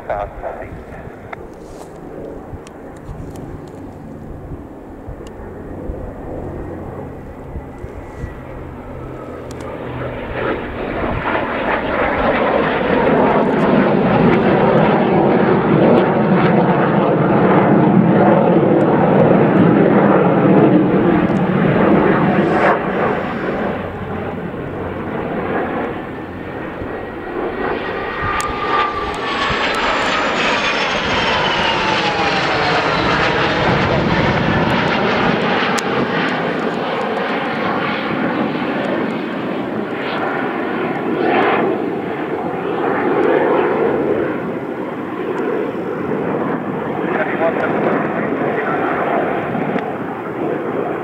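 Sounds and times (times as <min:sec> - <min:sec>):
high jet whine falling in pitch: 0:00.0 - 0:51.0
jet engines roaring overhead: 0:00.0 - 0:51.0.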